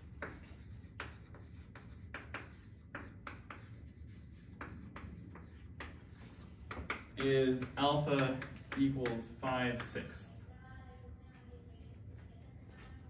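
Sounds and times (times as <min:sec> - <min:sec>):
chalk scratching on chalkboard: 0:00.0 - 0:10.0.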